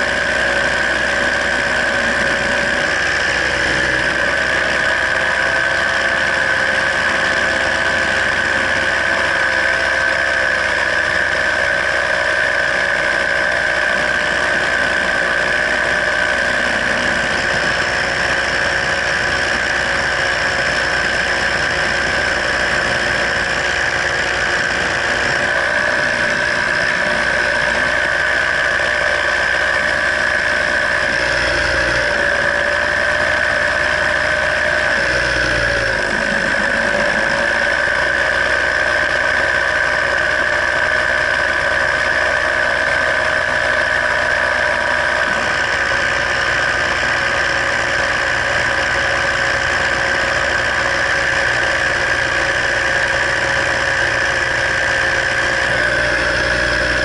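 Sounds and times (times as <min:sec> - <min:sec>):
low wind rumbles: 0:00.0 - 0:57.0
paramotor engine drone: 0:00.0 - 0:57.0.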